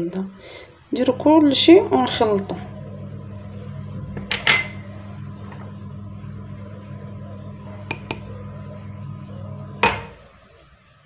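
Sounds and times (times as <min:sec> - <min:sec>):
low hum: 0:00.9 - 0:10.4.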